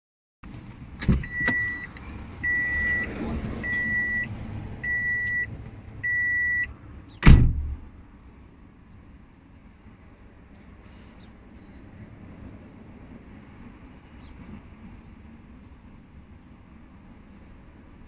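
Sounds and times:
electronic warning beeps: 0:01.2 - 0:06.7
loud thump: 0:07.2 - 0:07.8.

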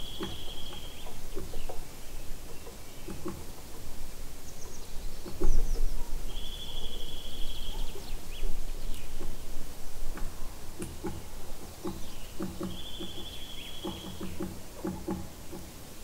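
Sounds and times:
bird trill: 0:00.0 - 0:03.8, 0:04.4 - 0:09.6, 0:11.3 - 0:14.6
songbirds chirping: 0:00.0 - 0:16.0.

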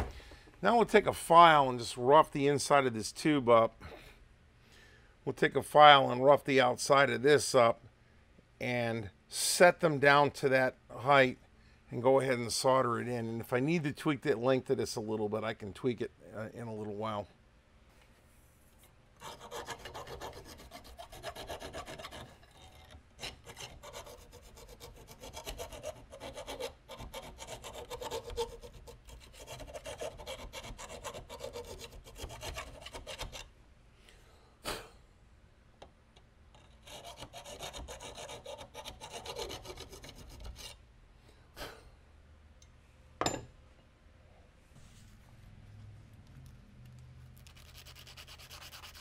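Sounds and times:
file rasping metal tube: 0:19.2 - 0:33.5, 0:36.6 - 0:40.8, 0:47.5 - 0:49.0.

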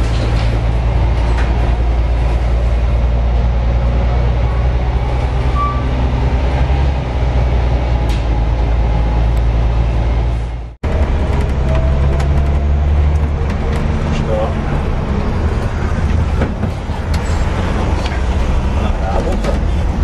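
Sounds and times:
bus engine rumble: 0:00.0 - 0:20.0
high squeak: 0:05.5 - 0:06.0.

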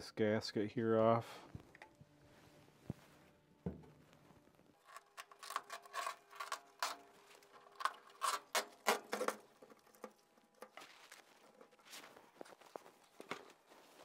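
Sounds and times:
gasket scraped off metal: 0:04.8 - 0:11.8.

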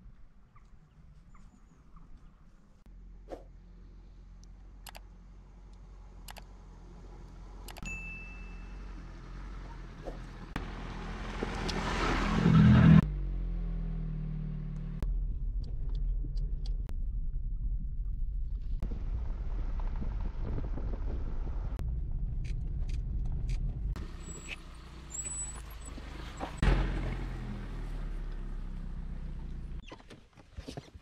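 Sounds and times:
engine running with low hum: 0:02.9 - 0:29.8
sharp clicks: 0:04.8 - 0:05.0, 0:06.2 - 0:06.5, 0:07.6 - 0:07.9.

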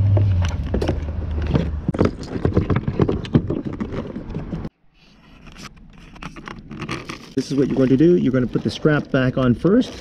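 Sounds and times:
hands rattling battery in plastic compartment: 0:06.0 - 0:08.0.

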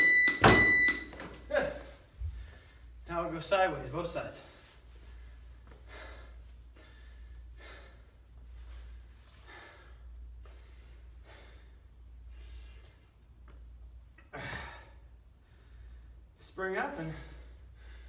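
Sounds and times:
steady low hum: 0:00.0 - 0:18.0
man breathing hard: 0:02.2 - 0:03.0, 0:04.4 - 0:13.1, 0:14.2 - 0:16.4, 0:17.0 - 0:18.0.

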